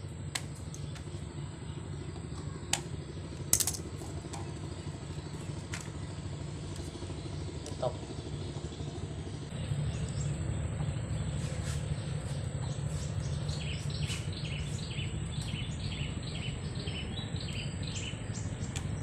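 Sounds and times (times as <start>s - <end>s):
low outdoor rumble: 0.0s - 19.0s
bird chirping: 4.1s - 19.0s.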